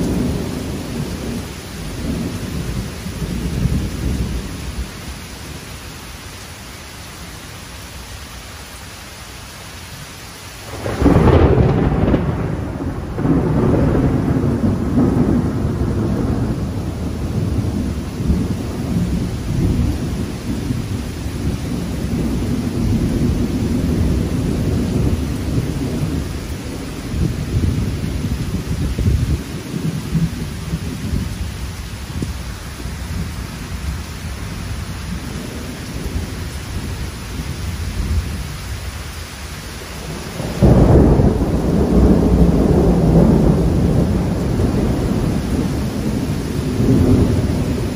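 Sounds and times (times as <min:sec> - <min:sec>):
steady rain: 0:00.0 - 0:47.9
thunder crash and rolling rumble: 0:10.7 - 0:33.9, 0:40.0 - 0:47.9.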